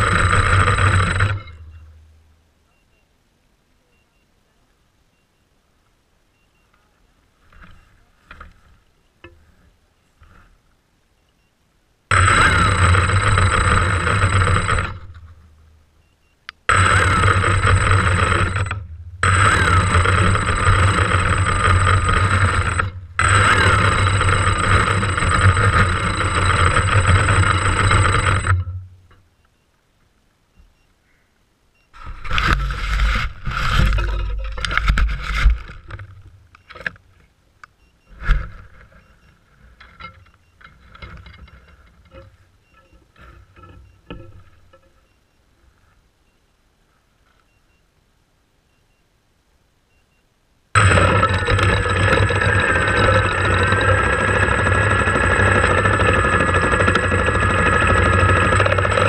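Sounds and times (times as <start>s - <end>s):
drone motors and propellers spinning: 0.0s - 1.9s, 12.1s - 28.8s, 32.0s - 37.0s, 50.8s - 59.0s.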